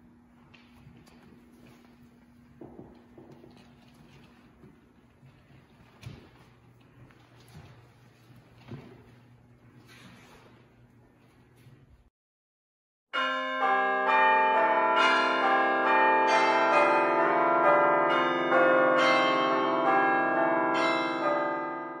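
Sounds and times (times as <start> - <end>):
bells ringing: 13.2 - 22.0.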